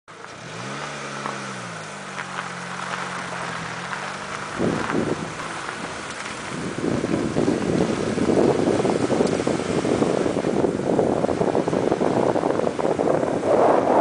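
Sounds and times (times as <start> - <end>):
car engine humming: 0.1 - 14.0
wind buffeting microphone: 2.9 - 14.0.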